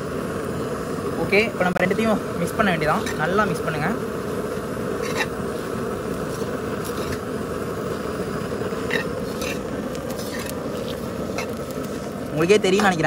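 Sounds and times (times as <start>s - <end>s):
spoon scraping puffed rice in pan: 5.0s - 5.3s, 8.9s - 11.9s.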